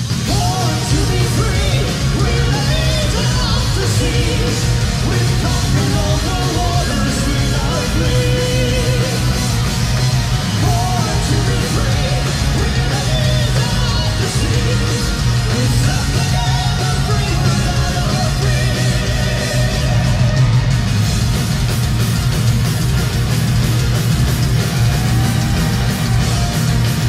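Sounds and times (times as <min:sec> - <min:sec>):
metal band playing live: 0:00.0 - 0:27.0
person singing: 0:00.3 - 0:09.4, 0:10.6 - 0:20.5.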